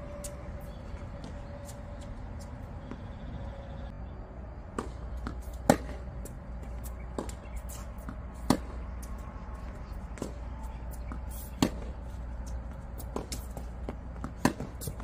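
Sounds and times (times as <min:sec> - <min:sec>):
racket hitting tennis ball: 0:04.7 - 0:15.0.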